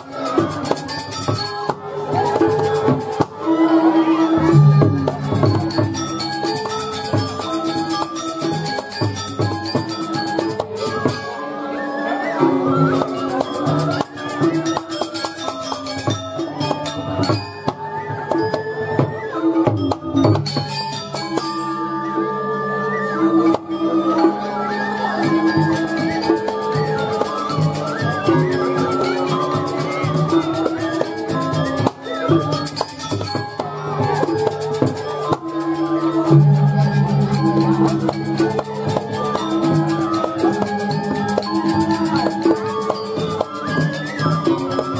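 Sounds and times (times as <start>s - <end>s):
drum strokes: 4.4s - 11.4s, 25.2s - 44.9s
metallophones playing quick notes: 4.4s - 11.5s, 25.2s - 44.9s
fast cymbal rhythm: 4.5s - 11.4s, 25.2s - 44.9s
metallophone ringing: 35.8s - 44.1s
gong notes: 36.3s - 39.7s.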